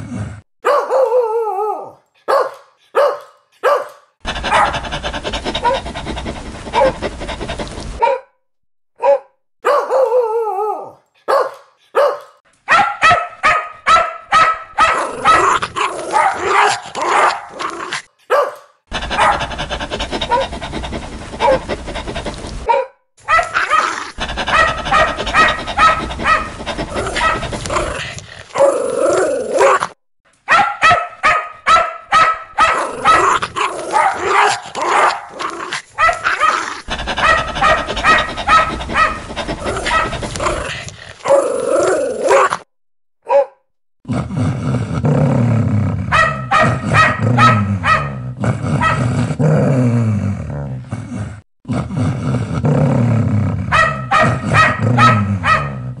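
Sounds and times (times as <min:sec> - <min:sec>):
dogs barking: 0:00.6 - 0:01.2, 0:02.2 - 0:08.3, 0:09.0 - 0:10.2, 0:11.2 - 0:17.7, 0:18.3 - 0:28.7, 0:30.5 - 0:41.4, 0:46.1 - 0:48.2, 0:48.8 - 0:49.1, 0:53.7 - 0:55.9.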